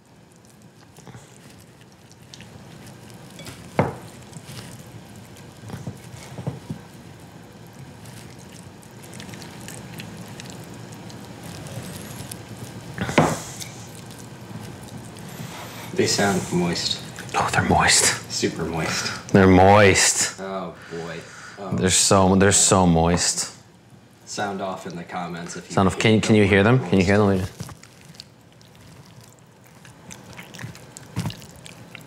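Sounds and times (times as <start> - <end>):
wet squishing of mashed food: 0.0 - 19.4, 26.5 - 32.0.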